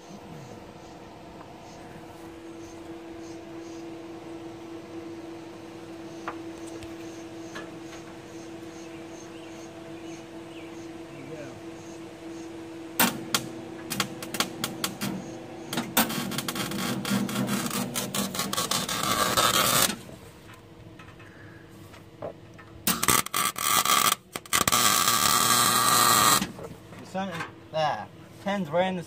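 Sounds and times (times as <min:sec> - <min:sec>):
welder crackling: 0:12.9 - 0:20.6, 0:22.5 - 0:27.3.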